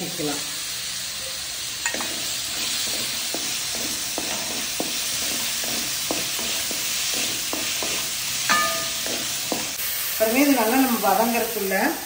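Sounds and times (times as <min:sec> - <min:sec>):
vegetables sizzling in oil: 0:00.0 - 0:12.0
wooden spatula scraping a pan: 0:01.9 - 0:09.8.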